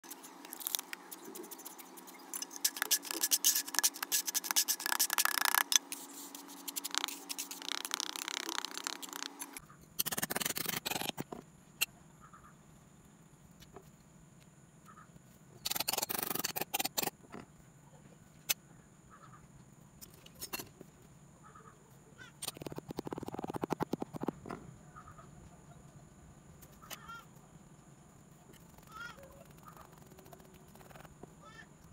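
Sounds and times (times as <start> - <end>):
hand scraping damp sand: 0.1 - 9.5.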